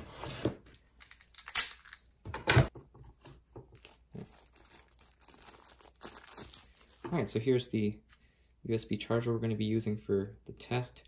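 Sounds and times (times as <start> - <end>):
plastic film crinkling and tearing: 3.8 - 7.0.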